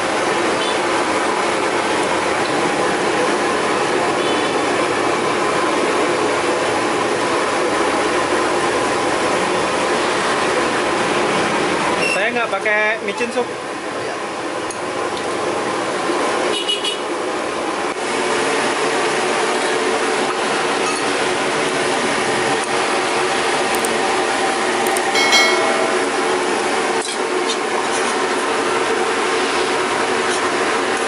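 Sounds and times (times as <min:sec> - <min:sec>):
boiling water: 0:12.6 - 0:24.7, 0:27.3 - 0:31.0
bowls and utensils clinking: 0:25.2 - 0:26.3.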